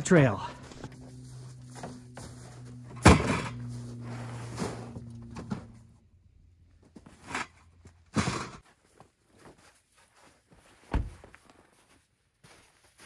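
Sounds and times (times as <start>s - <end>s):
low steady hum: 0.0s - 8.6s.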